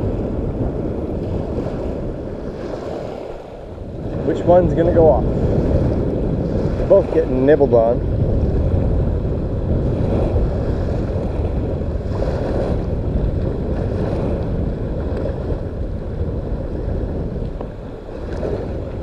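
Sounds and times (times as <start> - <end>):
wind rumbling on microphone: 0.0 - 19.0.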